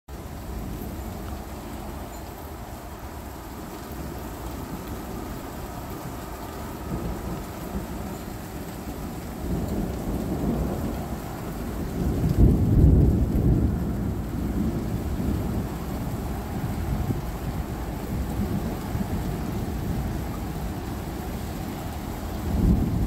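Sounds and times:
light rain: 0.1 - 23.0
rolling thunder: 4.6 - 23.0.

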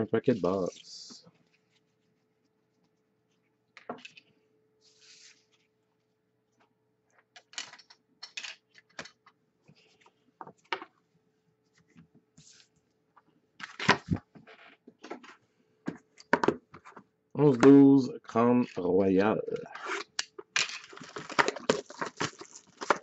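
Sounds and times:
trading cards rustling and tapping: 20.6 - 23.0.

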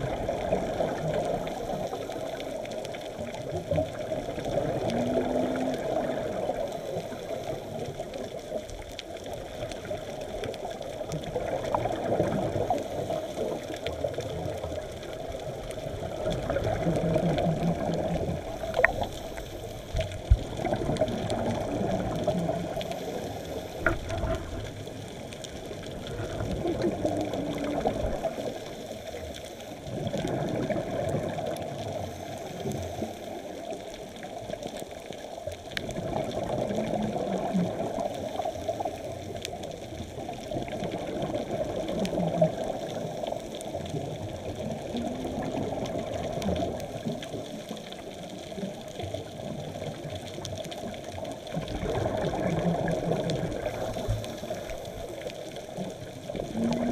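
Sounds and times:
exhaled bubbles: 0.0 - 56.9
muffled underwater rushing: 0.0 - 56.9
scuba diver breathing: 16.4 - 30.2, 52.3 - 55.7.

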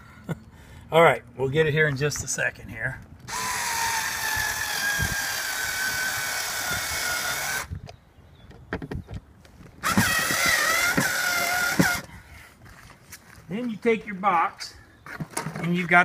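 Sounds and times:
electric screwdriver whining: 3.3 - 7.8, 9.8 - 12.1.

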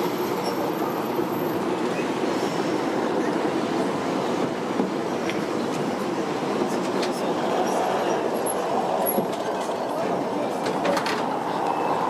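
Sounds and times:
tram wheels rumbling on rails: 0.0 - 12.0.

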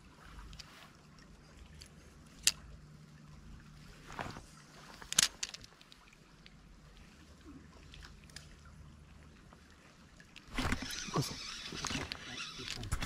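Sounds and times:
faint steady noise: 0.0 - 13.0
fishing reel clicks: 10.6 - 13.0.

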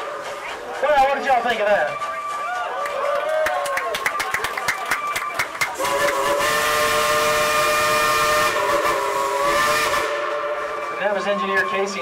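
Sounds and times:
steam hissing: 5.8 - 11.3
steam locomotive whistle: 5.8 - 12.0.

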